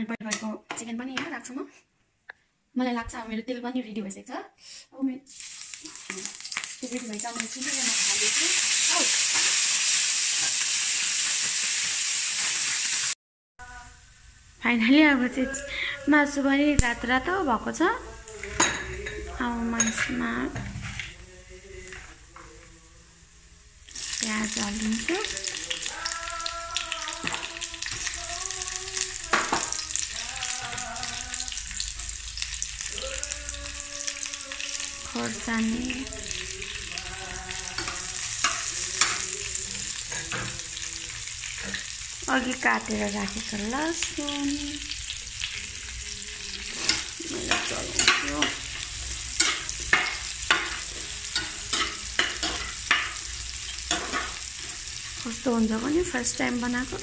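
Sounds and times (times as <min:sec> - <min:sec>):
food sizzling in oil: 0:05.2 - 0:13.2, 0:23.4 - 0:57.0
spatula scraping pan: 0:46.6 - 0:54.8.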